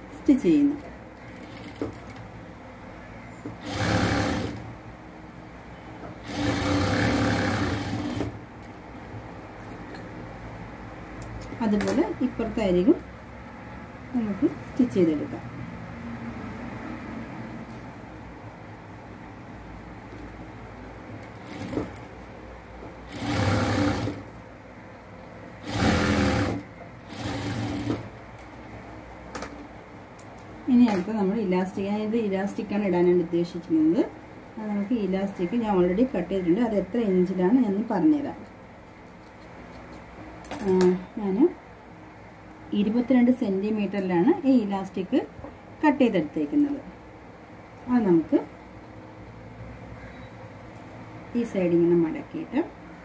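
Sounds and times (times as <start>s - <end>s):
low steady hum: 0.0s - 53.0s
sewing machine stitching: 1.3s - 2.2s, 3.6s - 4.7s, 6.2s - 8.4s, 21.4s - 22.1s, 23.0s - 24.3s, 25.6s - 28.1s.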